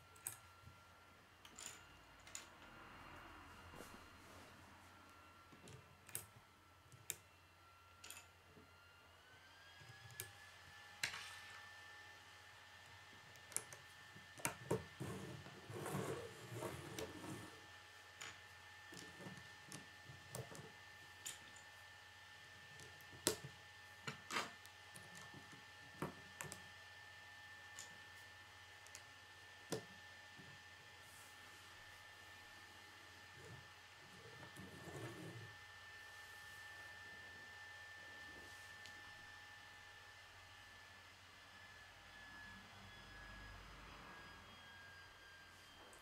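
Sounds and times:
rustling and sliding: 15.0s - 17.6s, 33.4s - 35.6s.

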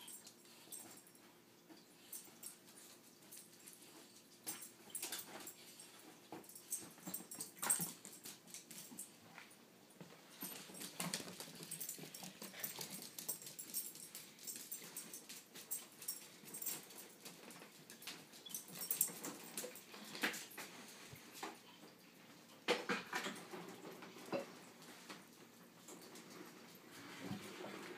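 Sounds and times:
dogs scuffling: 1.8s - 21.6s.

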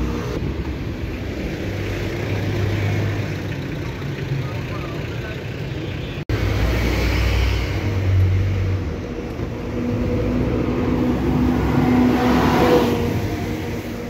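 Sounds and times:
traffic engine rumble: 0.0s - 14.0s
vehicle passing close: 6.3s - 14.0s.

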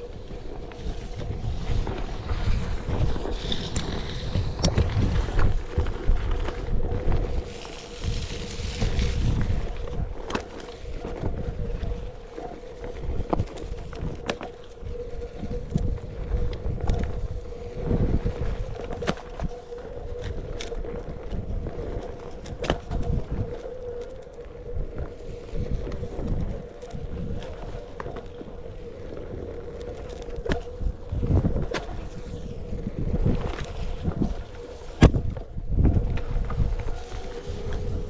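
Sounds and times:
tyre rumble over dirt: 0.0s - 23.6s
wind buffeting microphone: 0.0s - 38.0s.

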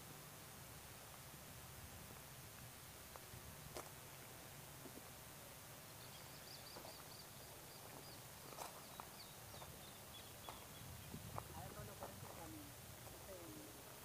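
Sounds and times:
small bird chirping: 5.9s - 11.4s.

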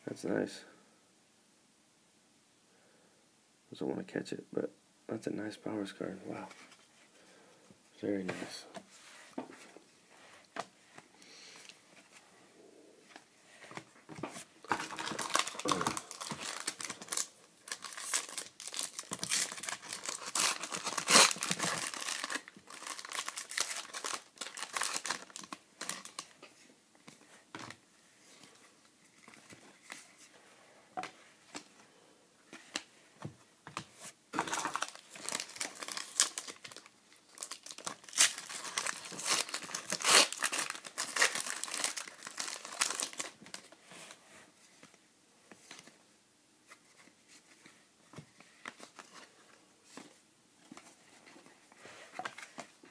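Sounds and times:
foil wrappers crinkling and tearing: 14.7s - 26.3s, 34.4s - 43.6s.

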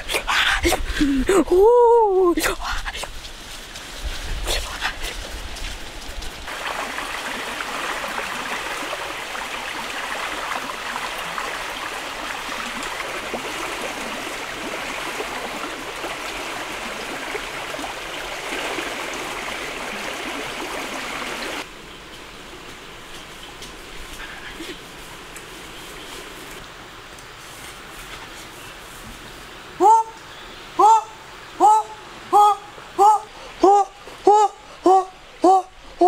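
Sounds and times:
water pouring and splashing: 3.1s - 21.7s.

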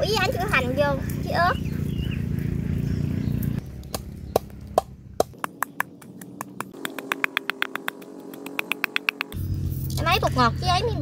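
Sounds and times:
pestle pounding in mortar: 5.2s - 9.4s.

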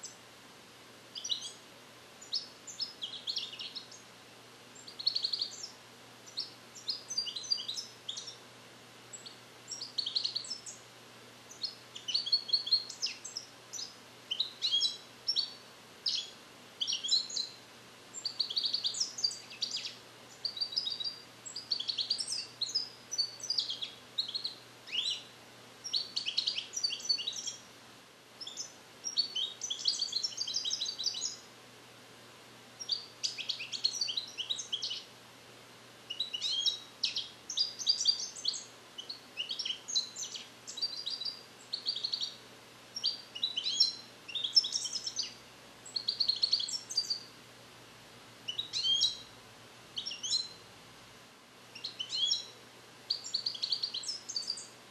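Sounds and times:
goldfinch singing: 1.2s - 1.6s, 2.2s - 4.0s, 4.8s - 8.4s, 9.1s - 10.8s, 11.5s - 27.7s, 28.4s - 31.4s, 32.8s - 35.1s, 36.1s - 42.4s, 43.0s - 47.3s, 48.5s - 49.3s, 50.0s - 50.6s, 51.8s - 52.5s, 53.1s - 54.7s.

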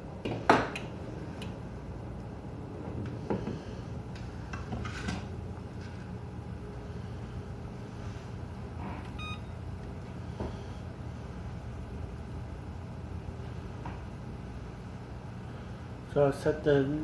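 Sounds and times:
steady low hum: 0.0s - 17.0s
short electronic beep: 9.2s - 9.5s.

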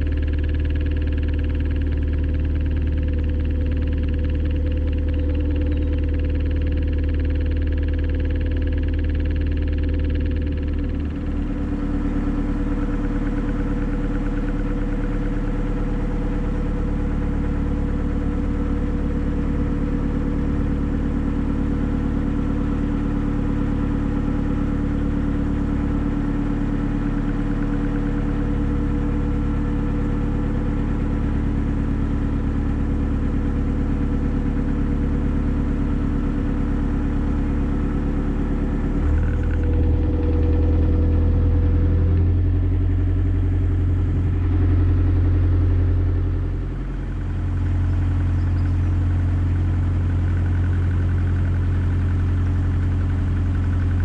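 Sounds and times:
boat engine running: 0.0s - 54.0s.

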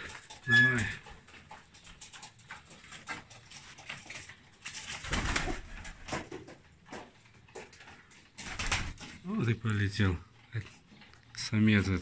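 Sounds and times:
pigeons cooing: 0.0s - 2.1s.

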